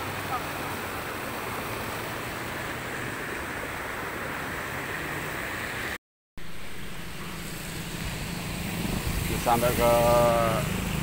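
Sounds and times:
flowing floodwater rushing: 0.0 - 11.0.

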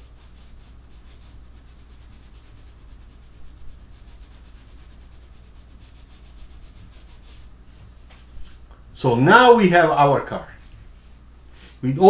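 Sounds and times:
pencil scratching on paper: 0.0 - 7.9.

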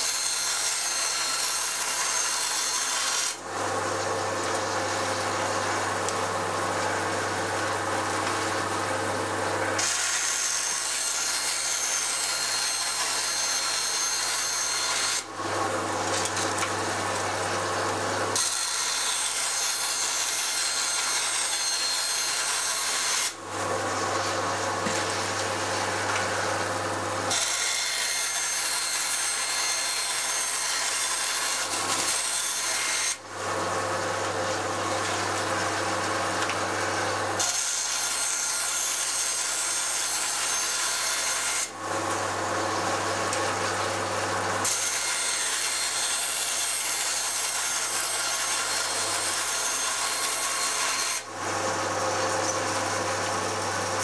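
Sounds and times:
bandsaw cutting: 0.0 - 54.0
motor hum: 3.4 - 10.0, 15.3 - 18.4, 23.4 - 27.4.

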